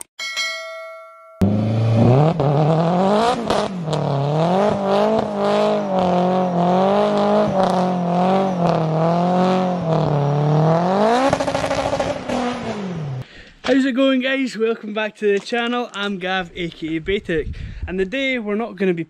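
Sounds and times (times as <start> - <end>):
car engine revving high: 1.4 - 13.2.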